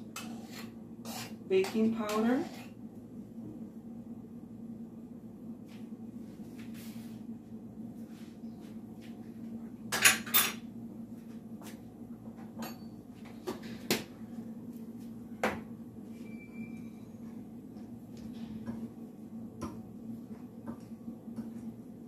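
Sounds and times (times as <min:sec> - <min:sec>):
steady low hum: 0:00.0 - 0:22.0
utensils and dishes clinking: 0:12.6 - 0:13.0.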